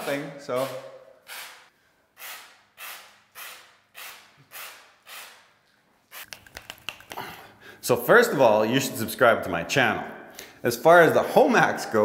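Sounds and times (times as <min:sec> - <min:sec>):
aerosol spray can hissing: 0:06.1 - 0:06.9.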